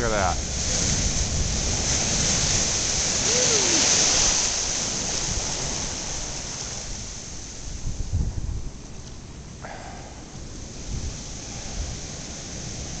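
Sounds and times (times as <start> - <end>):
surf crashing over seawall: 0.0 - 8.2
wind buffeting microphone: 0.0 - 13.0.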